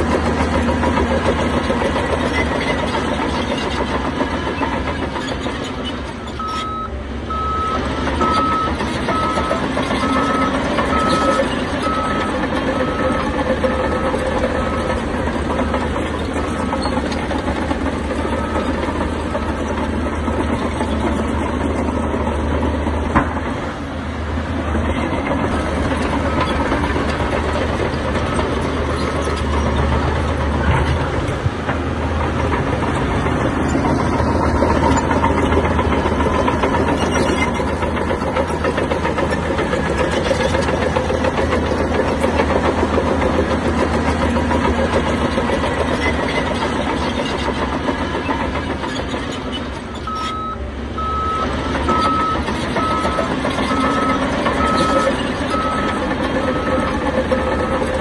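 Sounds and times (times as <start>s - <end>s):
heavy machinery engine running: 0.0s - 58.0s
reversing alarm beeping: 6.3s - 15.8s, 50.0s - 58.0s.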